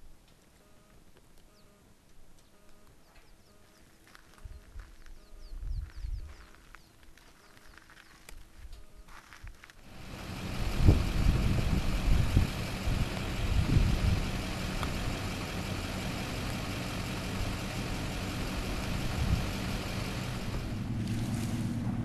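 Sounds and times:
vehicle engine idling: 9.8 - 22.0.

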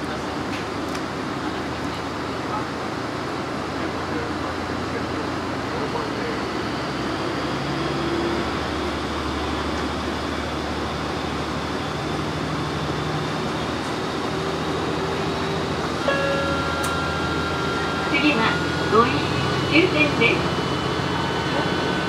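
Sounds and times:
diesel engine droning: 0.0 - 22.0
train wheel and rail noise: 0.0 - 22.0
steady electronic tones: 16.0 - 22.0.

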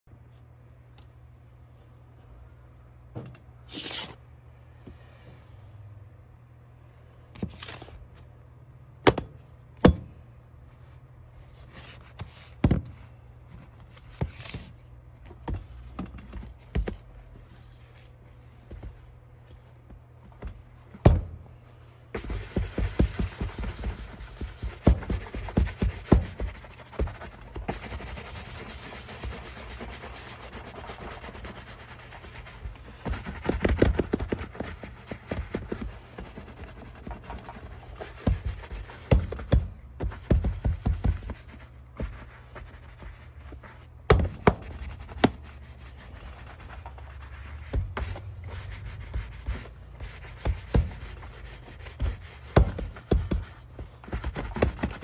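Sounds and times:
brush scrubbing leather boot: 22.2 - 43.1.

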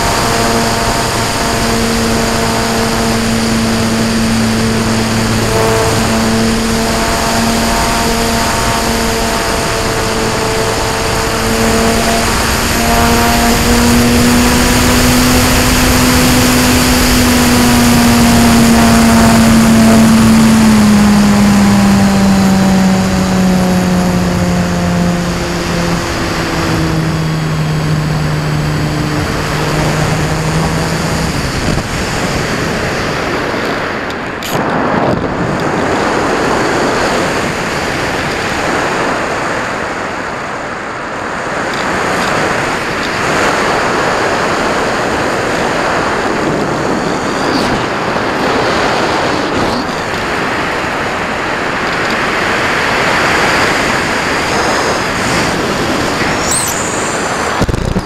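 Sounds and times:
electric motor and propeller hum: 0.0 - 58.0
wind rush: 0.0 - 58.0.

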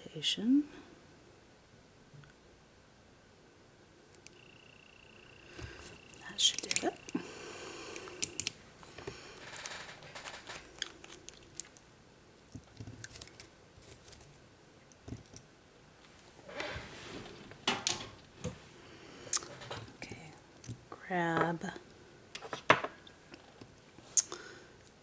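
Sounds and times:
small tools clicking on desk: 7.9 - 8.6.

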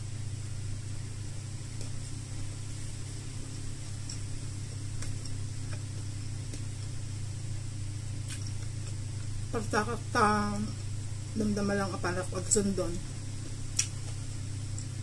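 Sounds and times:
constant hiss: 0.0 - 15.0
low hum: 0.0 - 15.0.

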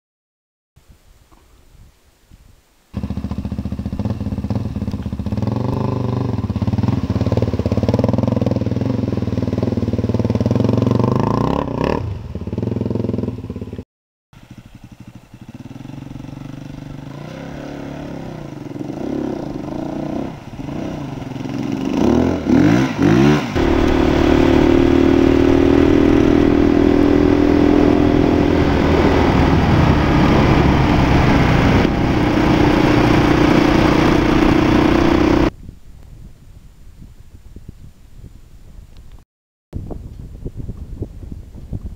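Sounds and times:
dirt bike engine revving: 3.0 - 13.6, 14.6 - 35.5.

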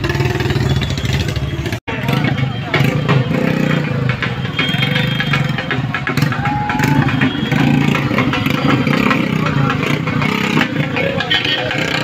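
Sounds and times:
motorcycle engines running: 0.0 - 12.0.

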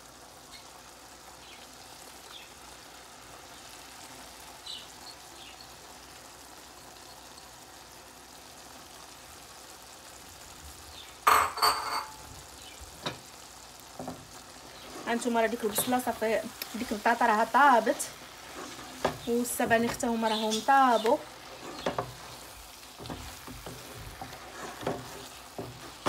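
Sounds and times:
pot simmering with faint sizzle: 0.0 - 26.0
kitchenware clattering against pot: 11.3 - 12.2.

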